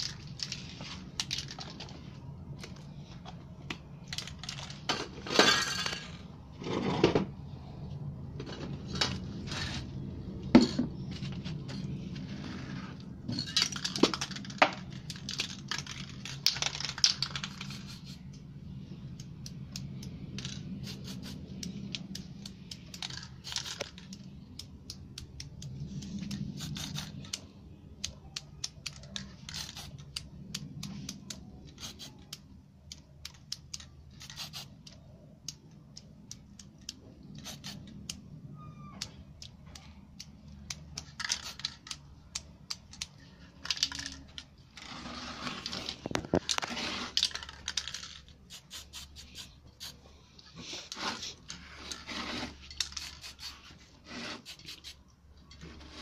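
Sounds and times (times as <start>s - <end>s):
spray paint can hissing: 15.1s - 18.3s, 20.4s - 24.7s, 25.9s - 27.4s, 29.3s - 30.2s, 31.0s - 32.3s, 34.2s - 34.8s, 37.3s - 37.9s, 41.2s - 41.8s, 48.4s - 50.0s, 52.0s - 55.0s
sharp clicks and taps: 38.9s - 43.4s.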